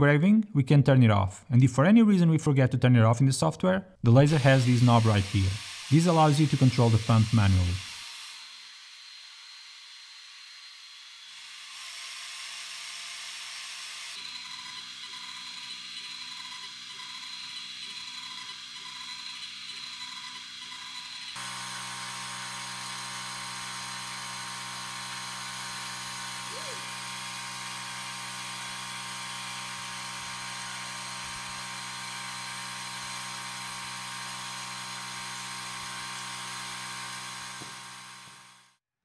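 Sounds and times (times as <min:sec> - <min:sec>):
laser engraver fan whine: 0:21.4 - 0:38.8.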